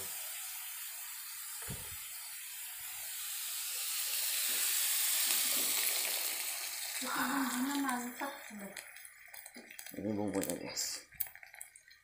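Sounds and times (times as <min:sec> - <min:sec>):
vegetables sizzling in oil: 0:00.0 - 0:11.5
low thump: 0:01.6 - 0:02.0.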